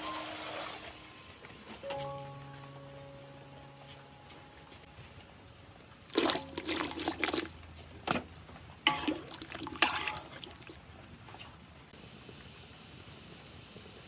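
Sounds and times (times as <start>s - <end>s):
liquid pouring and splashing: 6.0s - 10.9s.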